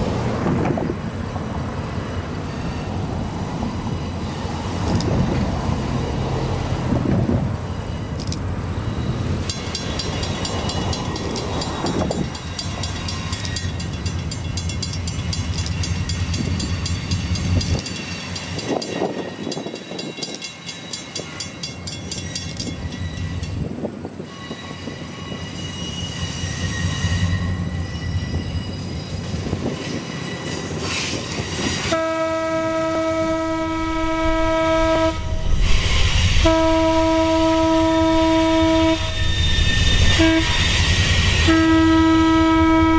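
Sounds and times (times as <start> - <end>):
diesel locomotive engine rumbling: 0.0 - 42.9
locomotive air horn blast: 31.7 - 42.9.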